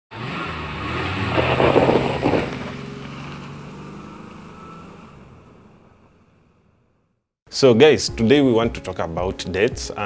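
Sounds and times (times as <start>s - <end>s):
engine revving: 0.1s - 6.4s.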